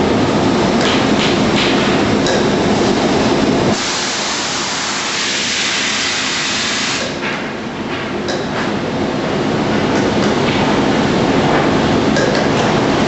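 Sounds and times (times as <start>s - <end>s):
shop machinery noise: 0.0s - 13.0s
compressed air hissing: 3.7s - 7.1s.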